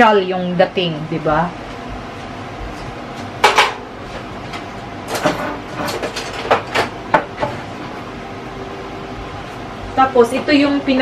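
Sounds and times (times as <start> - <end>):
kitchenware clinking: 5.1 - 7.6.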